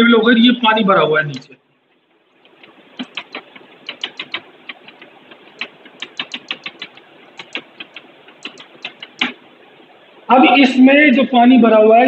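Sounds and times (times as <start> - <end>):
chalk tapping on blackboard: 2.4 - 9.4.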